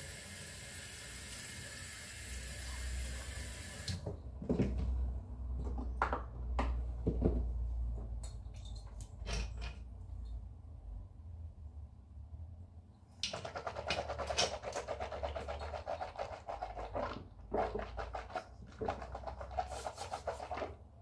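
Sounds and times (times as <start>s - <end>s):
sink tap running: 0.0s - 4.0s.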